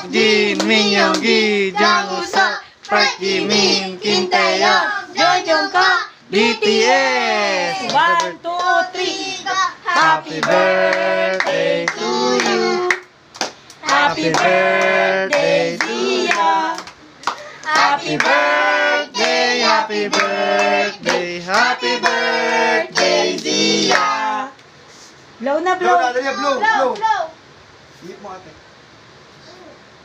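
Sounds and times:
rhythmic hand clapping: 0.0 - 3.1, 7.7 - 8.9, 9.9 - 24.2
child and adults singing: 0.0 - 13.1, 13.8 - 24.6.

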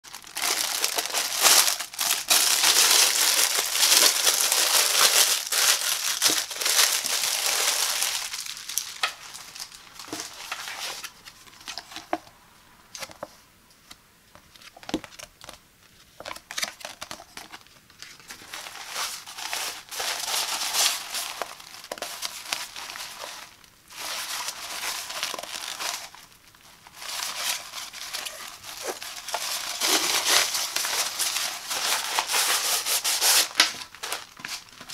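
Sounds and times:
plastic bag crinkling: 0.0 - 12.1, 16.3 - 34.9
nylon pouch rustling: 0.1 - 11.1, 26.9 - 34.9.

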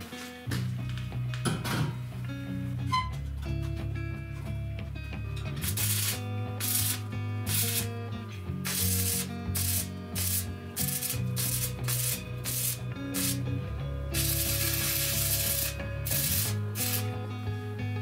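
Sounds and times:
arc welding crackle: 5.6 - 8.0, 8.6 - 17.2.

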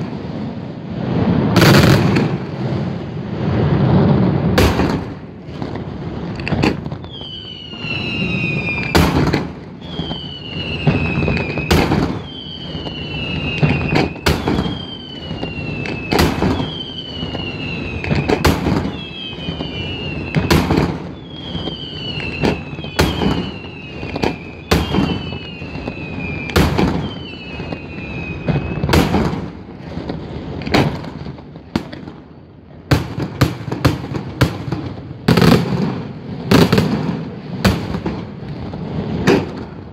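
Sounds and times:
fireworks bangs: 0.0 - 39.9
falling whistle: 7.0 - 9.1, 9.8 - 29.0.

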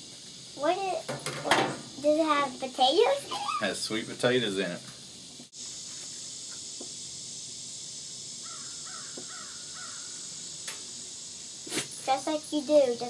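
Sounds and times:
butter sizzling on a griddle: 0.0 - 13.0
bird calling: 8.4 - 10.6.

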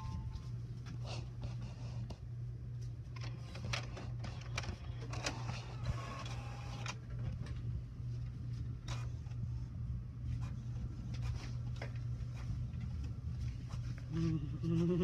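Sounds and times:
printer humming: 3.2 - 7.7.

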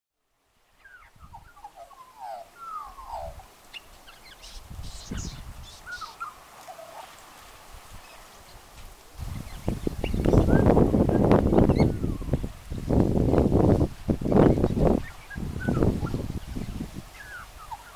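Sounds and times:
magpie warbling song: 0.8 - 7.1, 14.3 - 17.9
wind gusts on microphone: 0.9 - 17.9.

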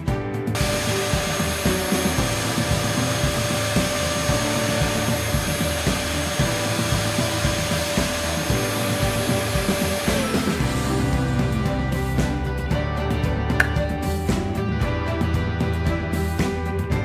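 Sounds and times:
vacuum motor suction with whine: 0.6 - 11.6.

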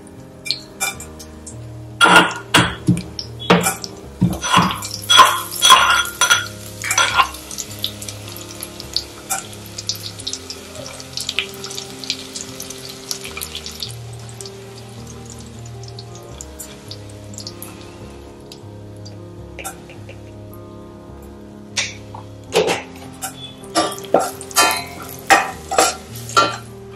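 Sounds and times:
spices sizzling in hot oil: 0.0 - 26.9.

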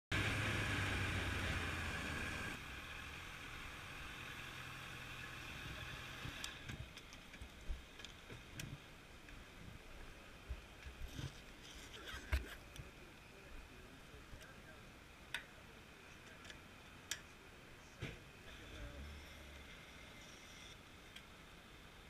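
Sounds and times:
motorcycle engine running: 0.1 - 6.6.

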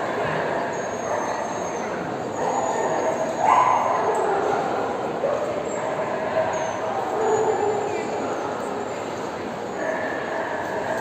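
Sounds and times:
dog barking: 3.4 - 4.0.

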